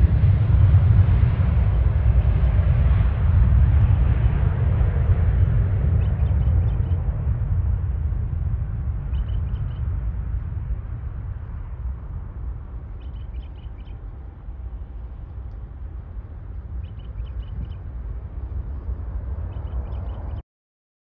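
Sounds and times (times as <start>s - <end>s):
jet engines rumbling: 0.0s - 20.4s
birds chirping: 5.1s - 7.1s, 9.0s - 10.1s, 12.7s - 14.6s, 16.5s - 17.9s, 19.4s - 20.4s.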